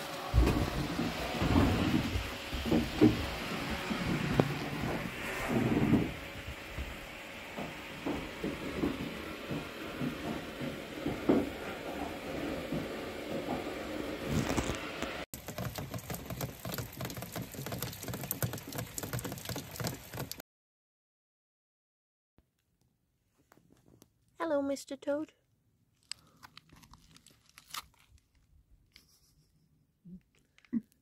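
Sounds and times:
muffled rain behind window: 0.0 - 20.4
rain pattering on concrete: 15.4 - 20.4.

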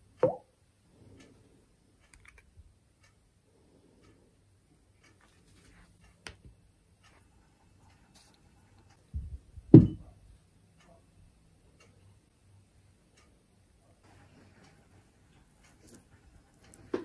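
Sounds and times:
soft knocks: 9.7 - 10.1
dull thump on tabletop: 9.8 - 10.0.

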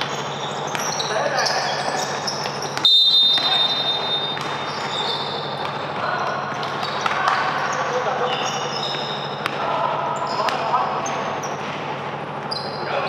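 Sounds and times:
basketball bouncing: 0.0 - 1.0, 1.7 - 7.5
referee's whistle blast: 2.8 - 5.5.

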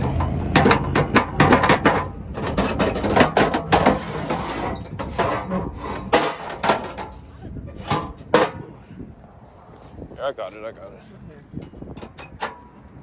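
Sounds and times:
irregular clicks and knocks: 0.0 - 4.0.

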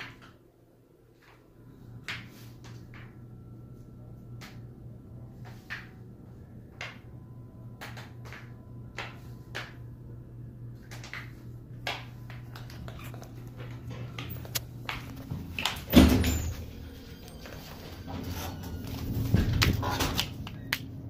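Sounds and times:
low hum: 0.5 - 21.0
high heels on tiled floor: 10.8 - 18.2.

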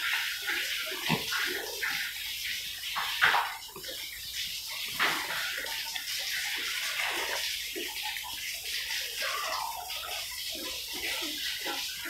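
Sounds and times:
pigs grunting and snuffling: 0.4 - 2.2.

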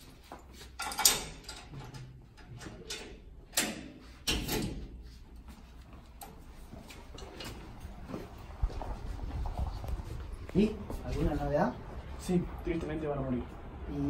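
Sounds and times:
metal gate rattling: 0.8 - 4.9
metal cell gate clanking: 0.8 - 5.0.

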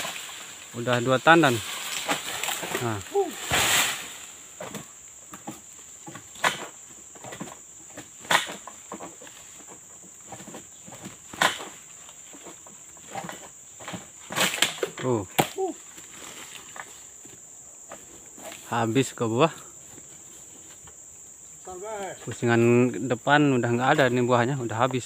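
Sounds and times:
sickle cracking through stalks: 0.0 - 4.9, 8.2 - 8.7, 14.3 - 15.8
insect drone: 0.0 - 25.0.

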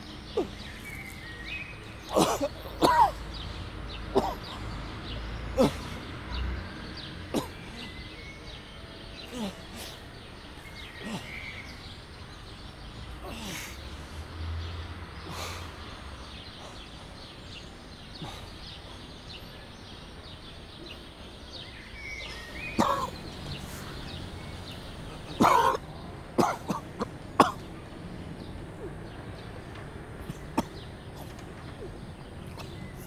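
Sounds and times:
harsh coughs: 2.0 - 3.2, 4.1 - 4.6, 7.3 - 7.9, 22.8 - 23.2, 25.2 - 25.8, 26.4 - 27.7.

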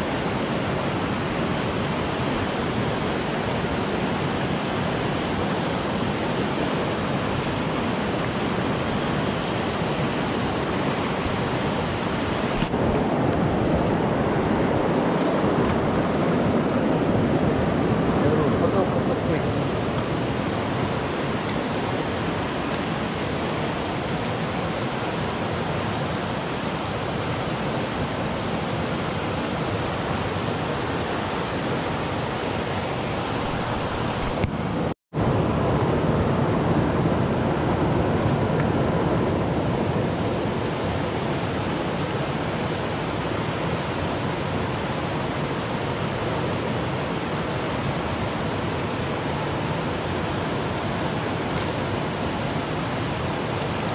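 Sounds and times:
river water rushing: 0.0 - 53.9.

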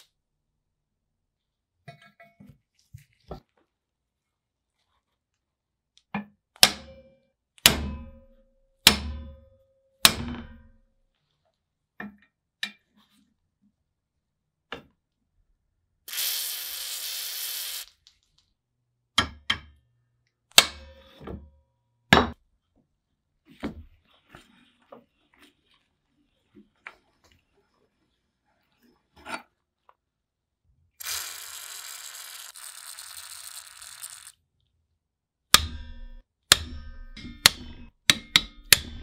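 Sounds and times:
hammer striking cast iron: 6.6 - 10.8, 20.6 - 21.2, 35.5 - 39.0
aerosol spray hissing: 16.1 - 17.9.

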